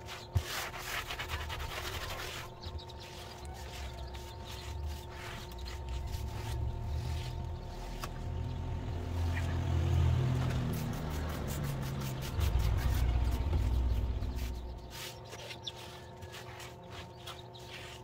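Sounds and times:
hand scrubbing rubbing strokes: 0:00.0 - 0:08.1, 0:10.6 - 0:18.0
low engine-like rumble: 0:01.3 - 0:16.9.

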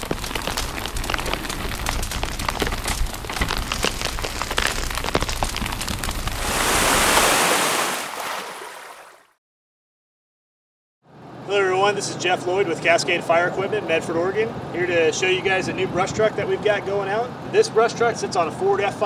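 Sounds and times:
fire crackling and popping: 0:00.0 - 0:07.6
loud rushing whoosh: 0:06.3 - 0:08.0.

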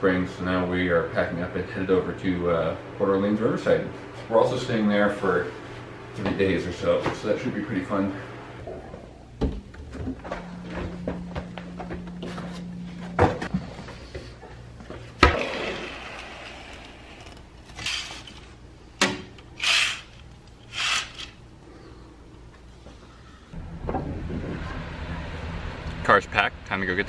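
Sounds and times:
low hum: 0:00.0 - 0:27.0.

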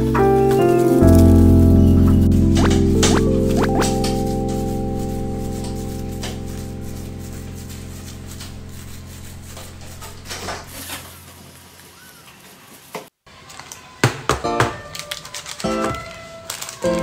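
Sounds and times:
held chord of background music: 0:00.0 - 0:10.8
music with quick plucked notes: 0:00.0 - 0:10.8
plastic glove crinkling on paper: 0:00.5 - 0:12.8, 0:14.8 - 0:17.0.

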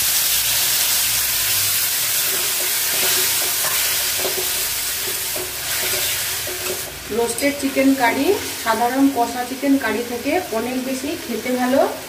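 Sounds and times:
curry sizzling in a pan: 0:00.0 - 0:12.0
metal spatula scraping a pan: 0:02.1 - 0:07.5.

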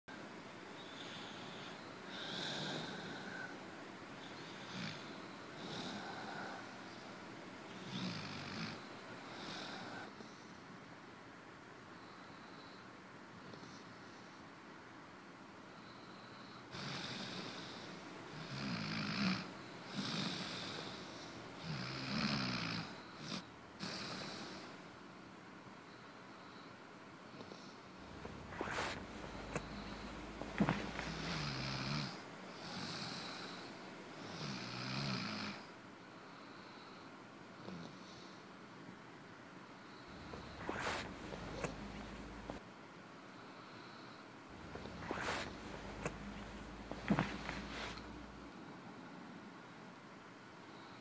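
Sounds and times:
person snoring: 0:01.0 - 0:03.6, 0:04.5 - 0:06.9, 0:28.0 - 0:35.6, 0:40.1 - 0:42.6, 0:44.6 - 0:48.4
breathy exhales: 0:28.0 - 0:33.8, 0:40.0 - 0:42.6, 0:43.5 - 0:48.5.

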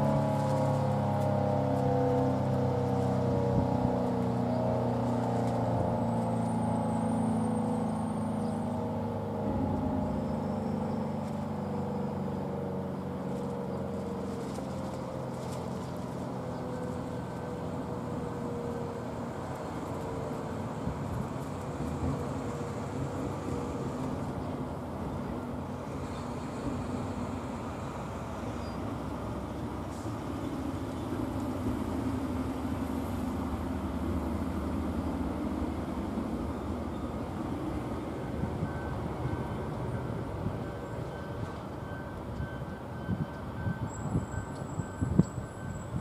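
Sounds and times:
rotating siren winding down: 0:00.0 - 0:11.4.

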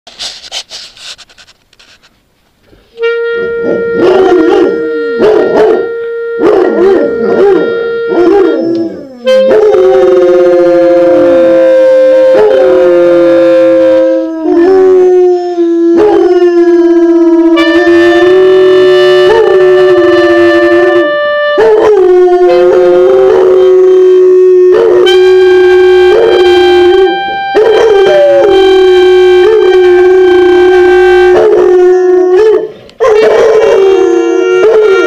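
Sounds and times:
clarinet long notes: 0:02.9 - 0:35.0
dogs howling: 0:31.4 - 0:35.0.

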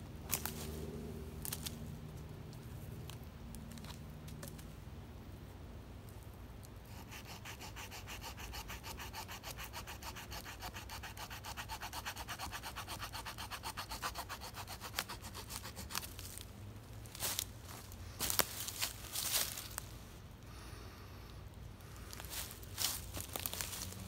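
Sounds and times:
small saw cutting wood: 0:06.9 - 0:16.3.

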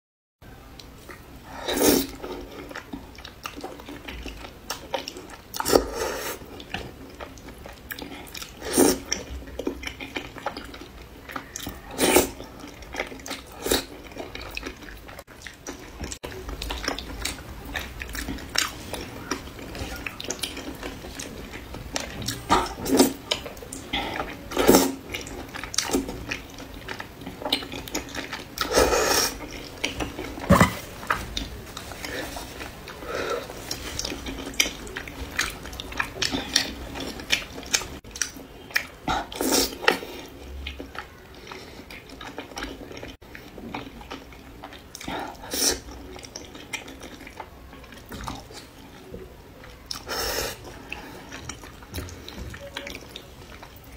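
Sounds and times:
soft chewing and smacking: 0:02.0 - 0:53.9.

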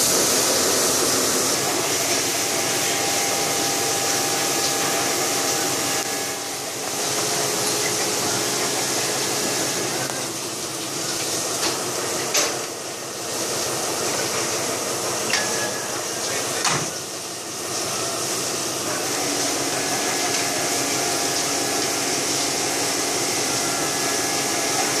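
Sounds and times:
hose spray on steel roof: 0:00.0 - 0:11.6.

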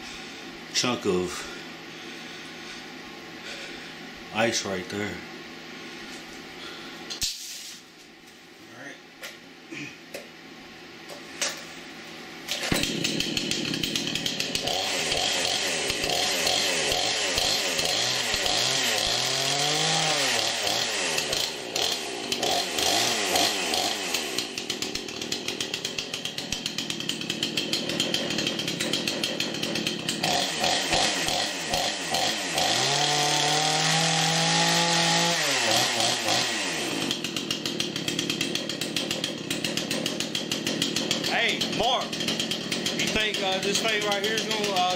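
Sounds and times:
chainsaw running and revving: 0:12.5 - 0:44.9.

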